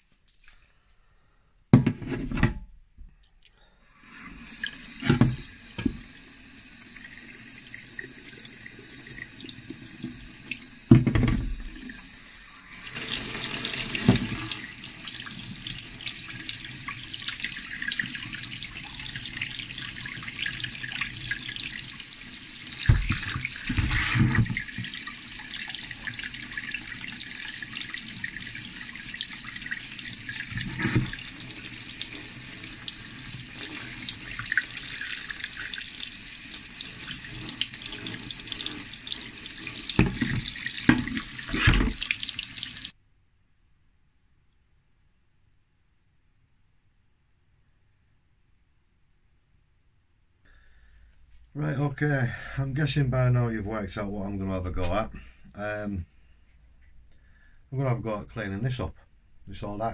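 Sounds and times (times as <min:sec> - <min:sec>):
tap running into steel sink: 0:05.0 - 0:06.0, 0:14.0 - 0:14.4, 0:22.8 - 0:24.6, 0:39.9 - 0:42.1.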